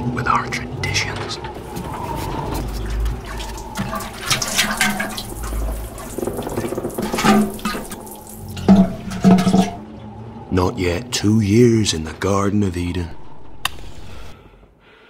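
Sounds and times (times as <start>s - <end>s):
water splashing onto wooden floor: 2.6s - 9.8s.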